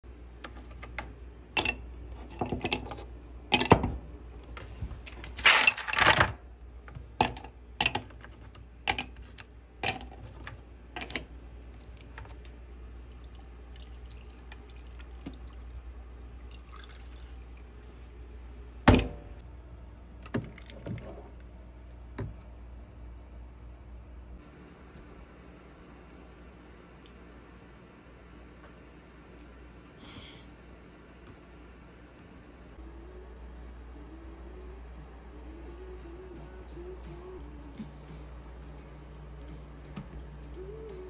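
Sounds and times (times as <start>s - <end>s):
ice cubes clinking into mug: 5.4s - 6.2s.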